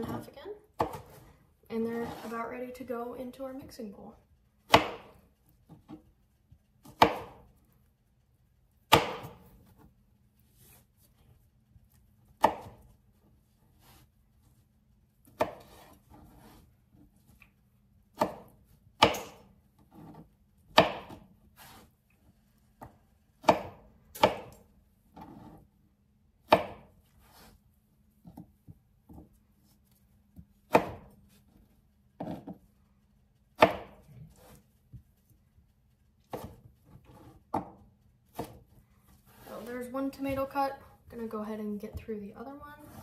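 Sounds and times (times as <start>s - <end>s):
knife chopping on cutting board: 0.8s - 1.2s, 4.7s - 6.0s, 6.8s - 7.5s, 8.9s - 9.7s, 12.3s - 12.9s, 15.2s - 16.6s, 18.1s - 21.9s, 22.8s - 25.6s, 26.5s - 27.5s, 30.4s - 31.2s, 32.2s - 32.6s, 33.6s - 34.6s, 36.3s - 39.6s.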